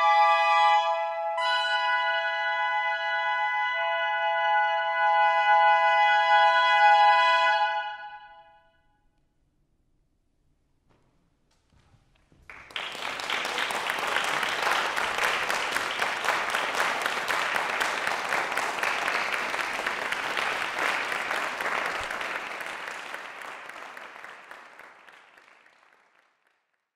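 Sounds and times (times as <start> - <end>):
audience applauding: 12.4 - 26.9.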